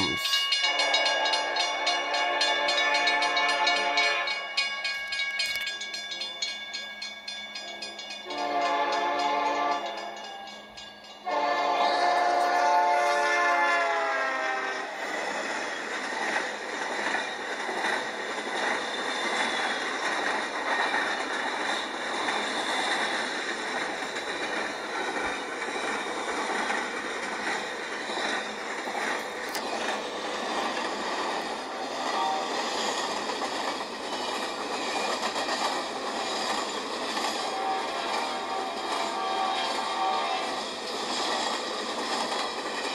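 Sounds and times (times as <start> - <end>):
freight train rattling past: 0.0 - 42.9
locomotive horn blasts: 0.6 - 4.4, 8.3 - 10.0, 11.2 - 14.8, 32.0 - 32.6, 37.4 - 40.5.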